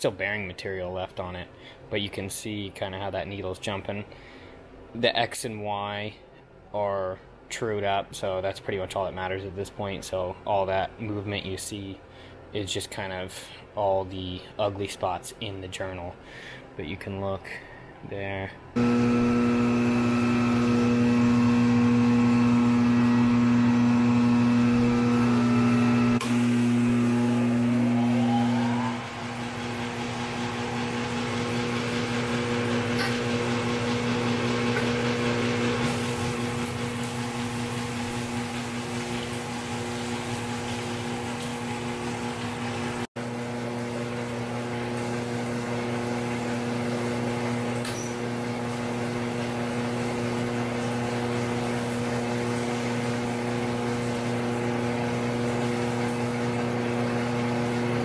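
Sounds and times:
motor hum: 18.8 - 58.0.

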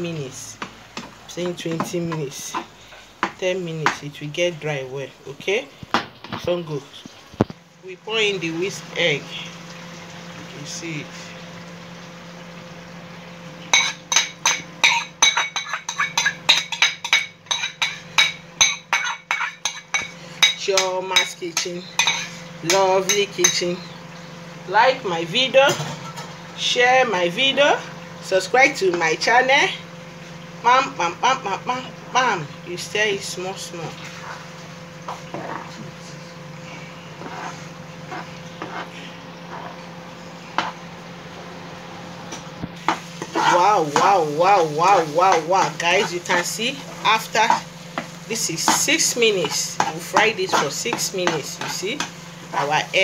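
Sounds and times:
low steady hum: 0.0 - 53.0
utensil scraping frying pan: 13.6 - 23.9, 33.3 - 35.9, 36.7 - 40.9, 42.3 - 53.0
metal utensil clinking on pan: 13.7 - 23.6.

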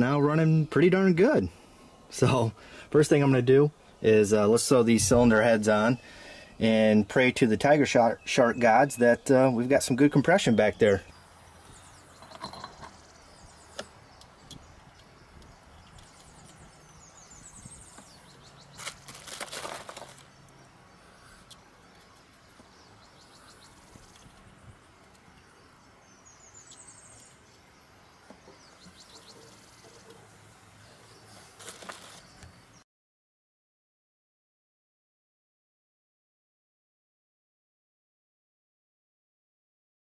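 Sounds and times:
rustle: 10.8 - 32.8.

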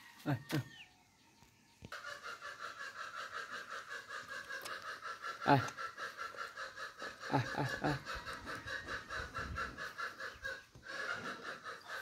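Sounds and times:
person snickering: 7.1 - 8.3.

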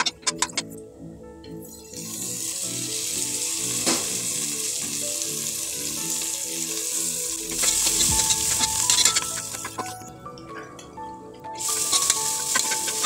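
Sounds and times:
vegetables sizzling in hot oil: 1.9 - 9.9, 11.6 - 13.0.

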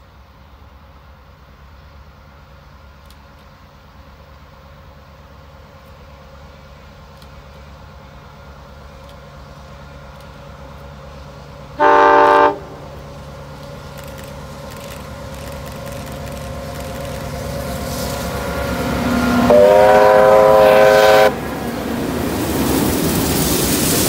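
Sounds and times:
train rumbling: 0.0 - 24.0
locomotive horn blast: 11.8 - 12.9, 19.0 - 21.4.

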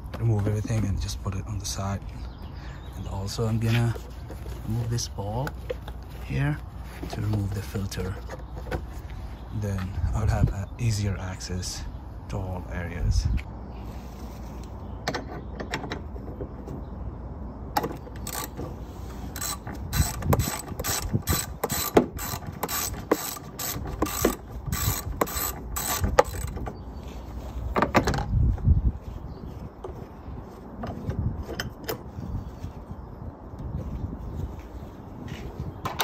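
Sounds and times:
ratchet wrench clicking: 18.2 - 18.6, 19.2 - 26.6.

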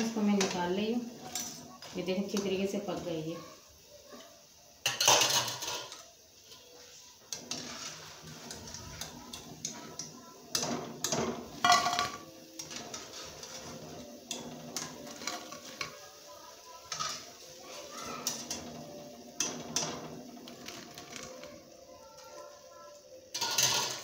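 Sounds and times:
metal skimmer scraping a pan: 7.3 - 21.7, 23.3 - 24.0.

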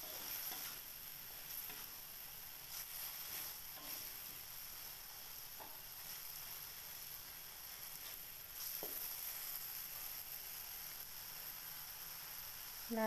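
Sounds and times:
metal spatula scraping wok: 0.0 - 2.0, 2.6 - 4.3
paste sizzling in hot oil: 0.0 - 13.0.

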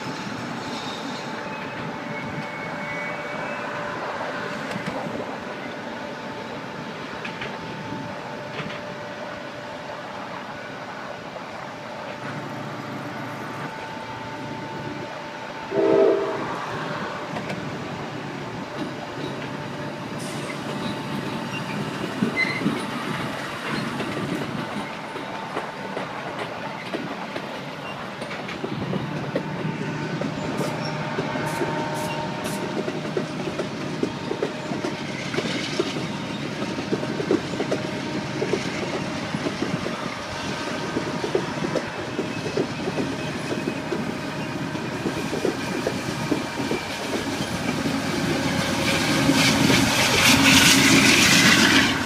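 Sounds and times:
diesel locomotive engine: 0.0 - 52.0
train wheels on rails: 0.0 - 52.0
train horn blast: 15.7 - 17.2.

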